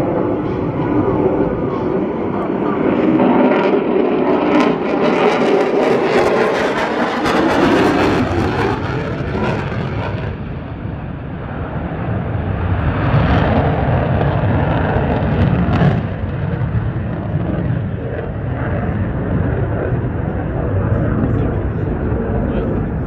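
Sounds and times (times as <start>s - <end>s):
jet engine roar with crackle: 0.0s - 23.0s.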